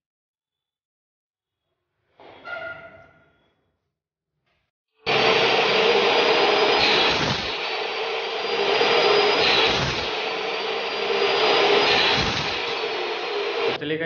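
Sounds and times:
chop saw cutting metal: 5.1s - 13.8s.

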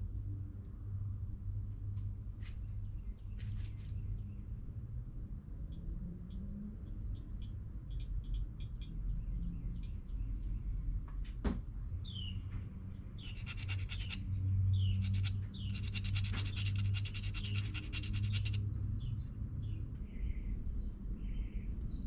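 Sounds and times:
songbird chirps and trills: 7.9s - 10.8s, 13.1s - 20.5s
steady low hum: 11.8s - 22.0s.

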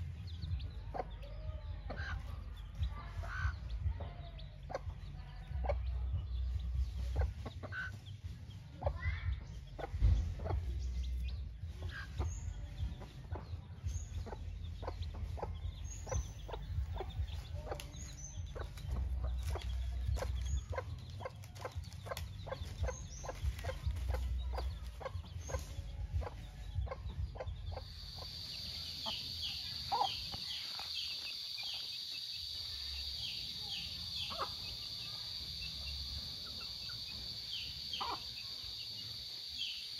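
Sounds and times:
low rumble: 0.0s - 30.4s
hen clucking: 0.5s - 8.1s, 9.8s - 39.9s.

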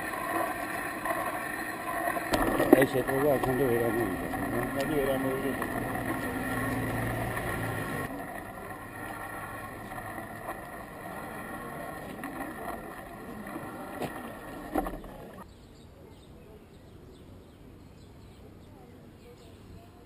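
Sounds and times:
vehicle engine running: 0.0s - 15.4s
outdoor background noise: 0.0s - 20.0s.

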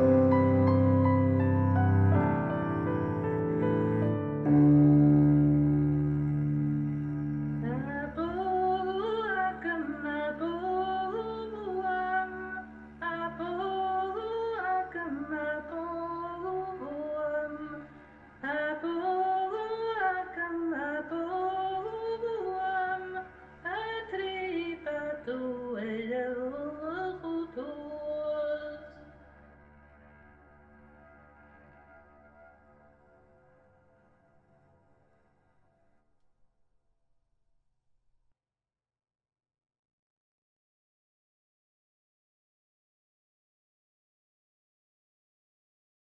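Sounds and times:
low held drone note: 0.0s - 25.5s
woman singing slow melody: 4.4s - 29.2s.

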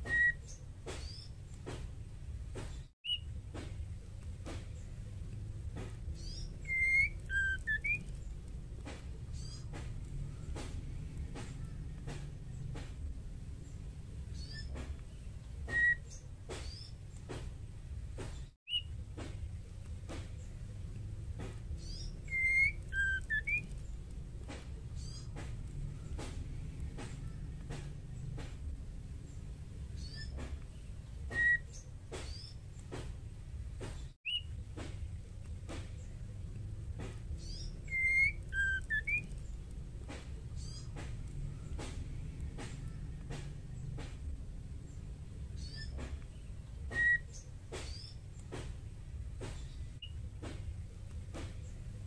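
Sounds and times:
bird whistled calls: 0.0s - 1.3s, 3.0s - 3.3s, 6.2s - 8.4s, 15.6s - 16.9s, 18.7s - 18.9s, 21.8s - 24.0s, 31.2s - 32.6s, 34.2s - 34.5s, 37.4s - 39.6s, 40.5s - 42.0s, 46.8s - 48.2s
faint regular clicks: 0.0s - 52.0s
low hum: 3.2s - 15.7s, 17.0s - 31.3s, 32.6s - 46.9s.

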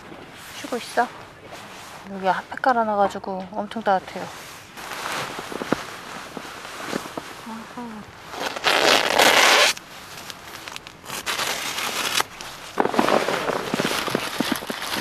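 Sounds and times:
zipper pulled: 8.3s - 9.8s.

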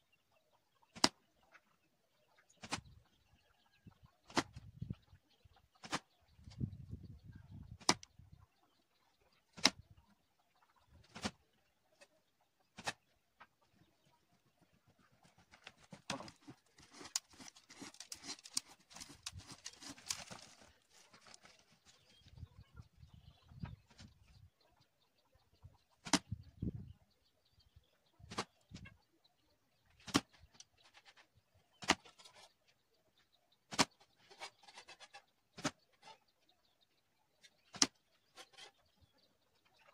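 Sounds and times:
arrows striking cardboard target: 4.3s - 4.5s, 5.8s - 6.0s, 9.6s - 9.8s, 12.8s - 13.0s, 15.9s - 20.5s, 26.0s - 26.3s, 30.0s - 30.3s.

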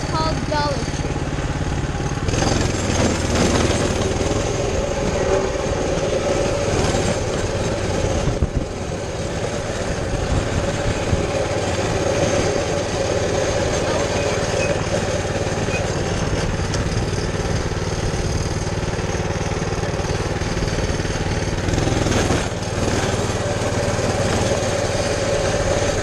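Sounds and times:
minibike engine running: 0.0s - 26.0s
wind and road noise: 0.0s - 26.0s.

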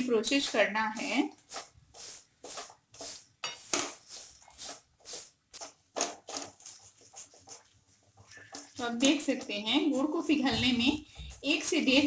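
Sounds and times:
spatula scraping steel pan: 0.0s - 5.7s.

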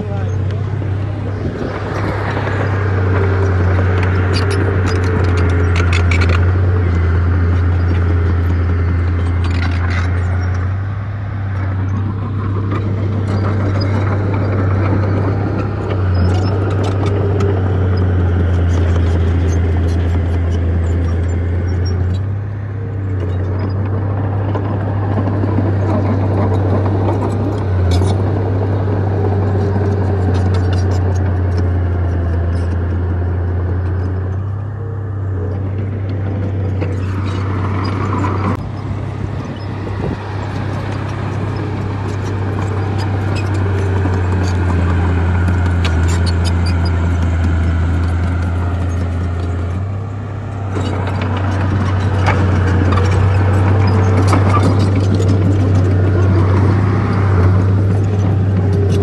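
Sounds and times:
bulldozer diesel engine: 0.0s - 59.0s.

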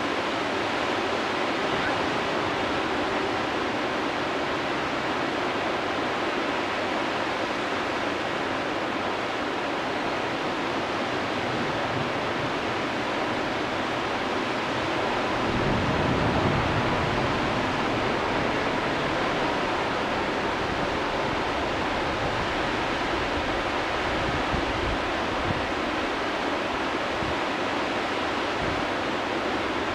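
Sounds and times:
river rapids rushing: 0.0s - 29.9s
wind rumble on microphone: 10.1s - 29.9s.

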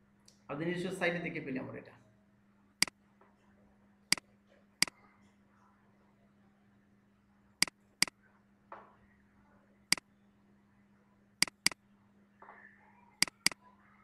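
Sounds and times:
mouse button clicks: 11.4s - 11.8s, 13.2s - 13.6s.

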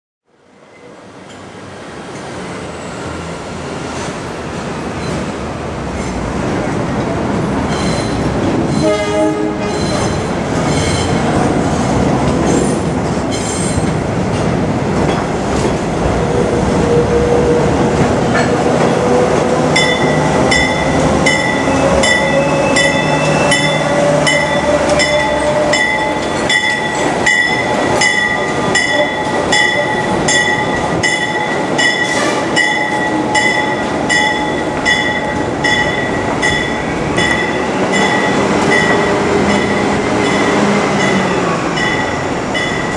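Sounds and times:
steel wheels squealing on track: 7.6s - 8.9s, 9.6s - 11.2s, 19.8s - 30.5s.

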